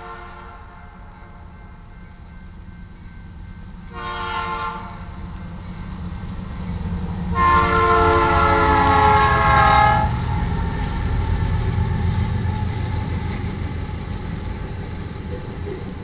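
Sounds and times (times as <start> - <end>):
locomotive air horn blast: 0.0 - 1.4, 3.9 - 5.1, 7.3 - 10.2
freight train rumbling by: 0.0 - 16.0.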